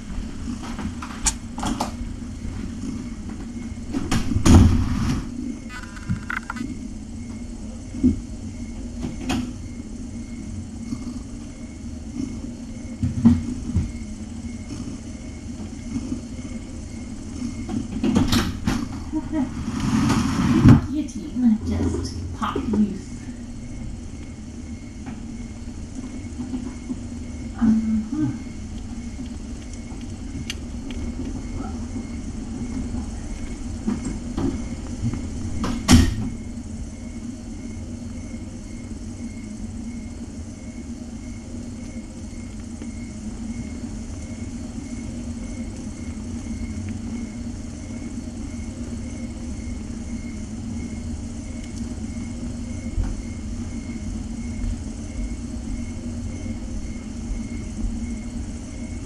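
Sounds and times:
low room hum: 0.0s - 59.0s
faint regular ticking: 28.5s - 31.4s.

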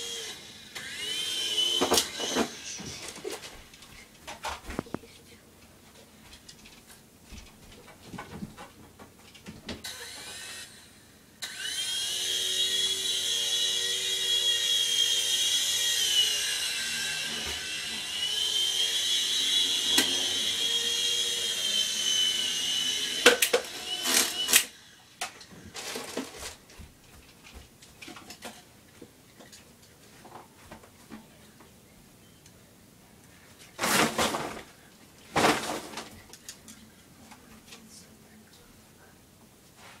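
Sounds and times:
toy helicopter rotor whining: 0.0s - 3.4s, 9.8s - 26.2s.

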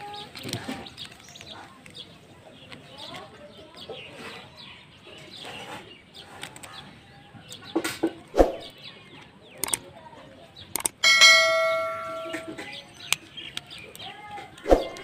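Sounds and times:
birds chirping: 0.0s - 15.0s
plastic toy parts clicking: 6.3s - 6.8s, 9.6s - 9.9s, 10.7s - 11.0s, 12.9s - 15.0s
bell-like ding: 11.0s - 12.7s.

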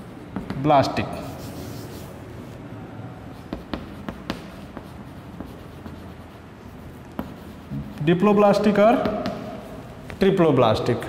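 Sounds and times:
chalk scratching on chalkboard: 0.0s - 2.2s, 3.3s - 10.2s
sharp chalk taps: 0.3s - 2.0s, 3.4s - 10.2s.

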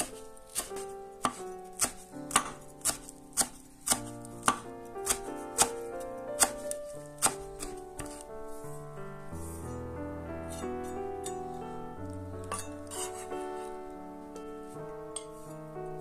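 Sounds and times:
knife chopping on wooden board: 0.0s - 5.8s, 6.4s - 8.2s
soft background music: 0.0s - 16.0s.

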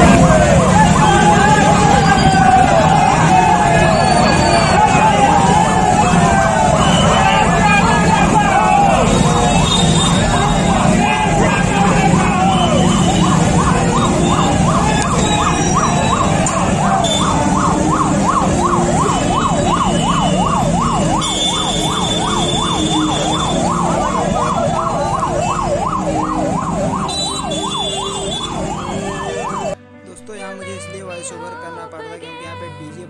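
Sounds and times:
crowd hubbub: 0.0s - 29.8s
electronic siren yelping: 0.0s - 29.8s.

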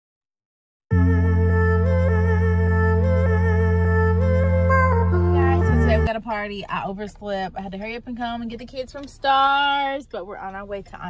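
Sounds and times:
melody over low drone: 0.9s - 6.1s.

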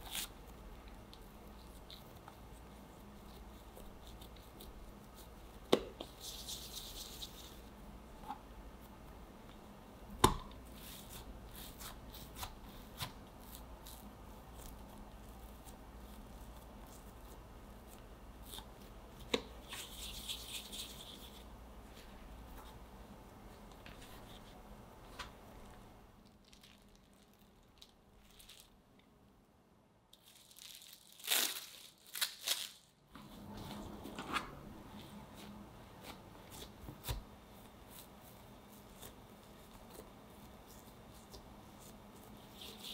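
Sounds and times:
hands rolling dough: 0.0s - 28.7s, 33.1s - 42.9s.

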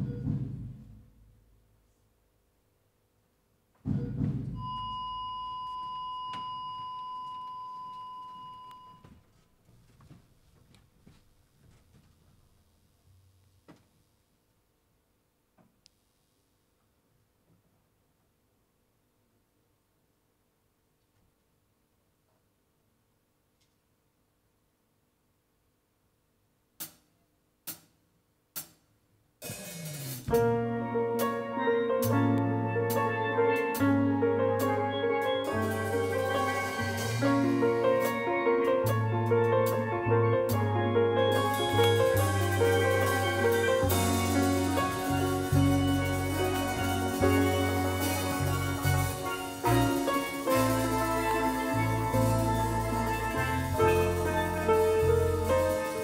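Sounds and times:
steel band playing: 29.4s - 56.0s.

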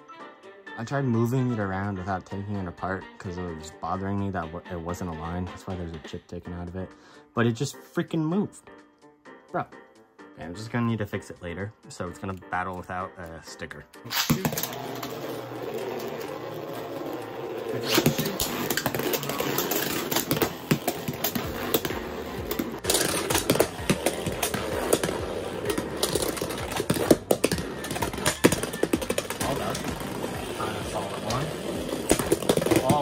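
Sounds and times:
spinning tops whirring: 14.1s - 33.0s.

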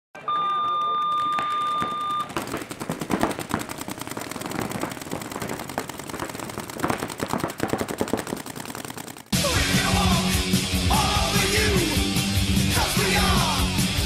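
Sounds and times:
paintball markers firing: 0.8s - 9.4s.

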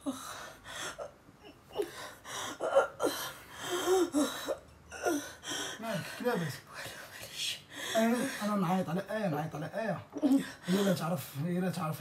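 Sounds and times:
woman gasping: 0.0s - 7.0s.

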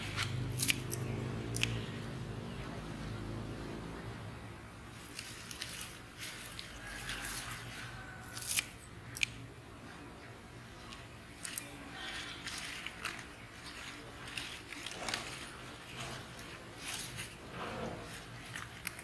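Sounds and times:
soft rustling: 5.0s - 8.3s
handling clicks and snaps: 8.3s - 9.4s, 18.5s - 19.0s.

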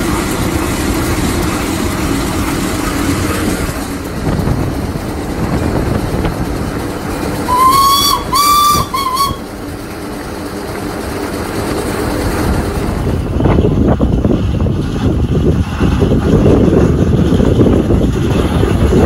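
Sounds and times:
road rumble: 0.0s - 19.0s
steam engine running: 0.0s - 19.0s
wind buffeting microphone: 0.0s - 19.0s
steam whistle blasts: 7.4s - 9.5s.

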